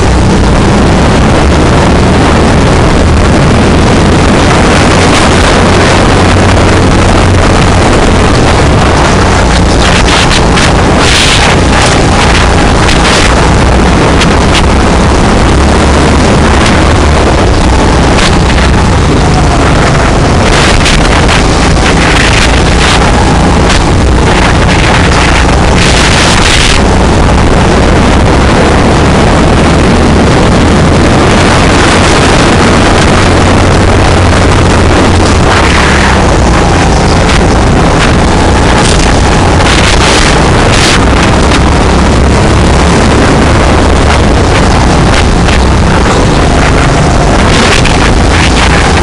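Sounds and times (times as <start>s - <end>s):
go-kart engine running: 0.0s - 49.0s
wind rushing over microphone: 0.0s - 49.0s.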